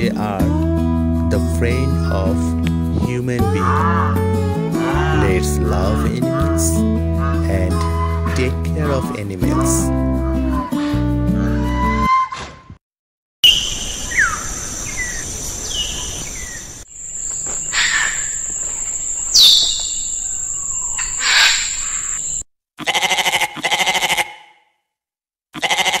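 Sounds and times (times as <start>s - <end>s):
goat bleating: 3.5s - 6.6s, 22.8s - 24.4s, 25.6s - 26.0s
birds chirping: 13.4s - 22.5s.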